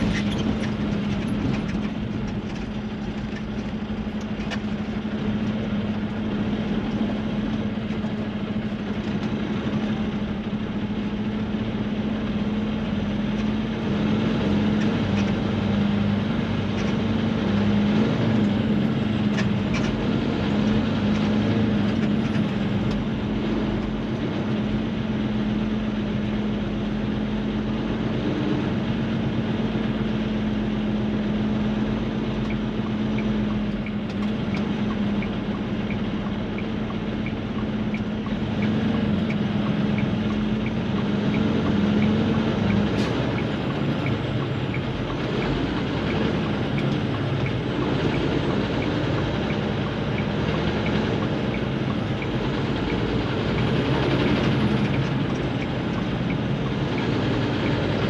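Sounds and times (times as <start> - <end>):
vehicle engine and road drone: 0.0 - 58.0
faint regular ticking: 32.0 - 58.0.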